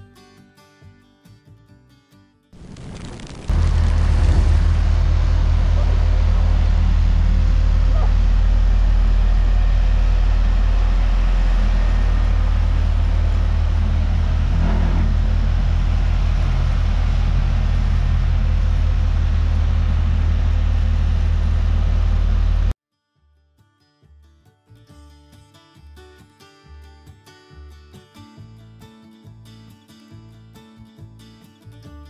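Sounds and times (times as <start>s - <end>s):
roller compactor engine rumbling: 3.4s - 22.7s.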